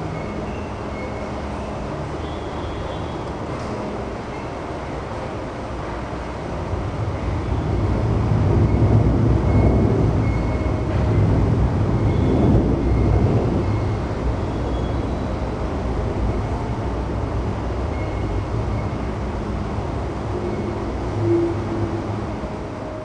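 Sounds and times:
train wheels rumbling on rail: 2.9 - 23.0.

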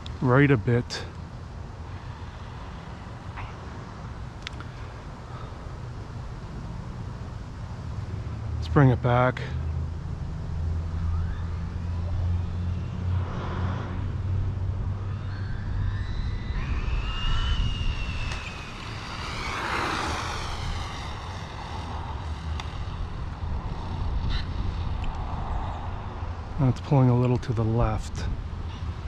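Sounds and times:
rc car electric motor whining: 15.2 - 24.6.

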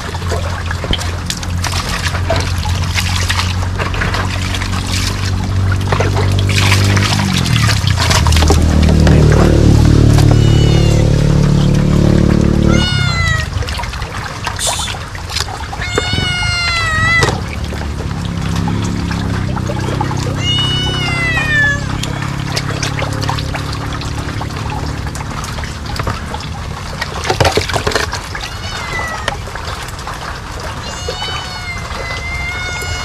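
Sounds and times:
animal calling: 9.5 - 11.8, 12.6 - 13.7, 15.6 - 17.6, 18.3 - 22.9, 28.4 - 29.4, 30.7 - 33.0.

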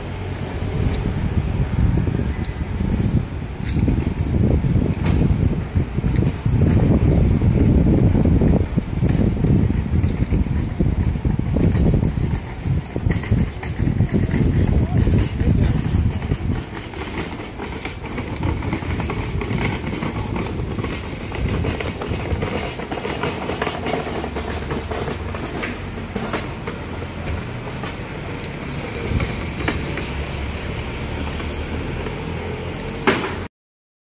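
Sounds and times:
outdoor background rumble: 0.0 - 33.5.

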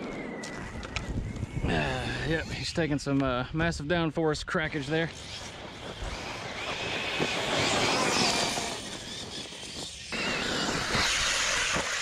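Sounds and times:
tyres on dirt: 4.6 - 12.0
electric motor whine: 5.0 - 12.0.

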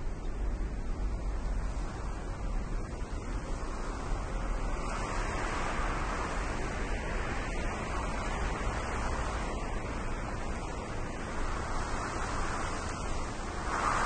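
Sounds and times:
rushing wind: 0.0 - 14.0.

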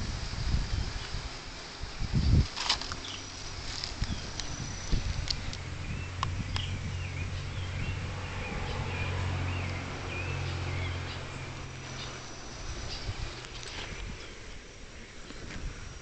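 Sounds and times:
wavering bird calls: 2.9 - 15.2.

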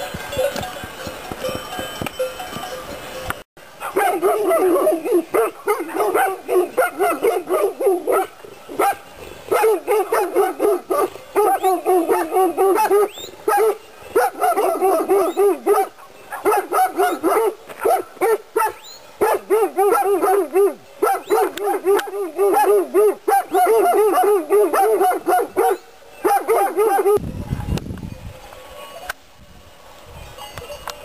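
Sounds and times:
dogs barking: 3.8 - 27.2.

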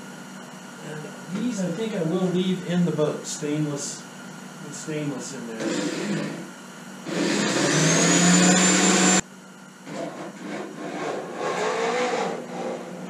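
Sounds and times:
irregular work sounds: 0.0 - 13.0
electric drill whining: 5.6 - 9.2, 9.8 - 13.0.

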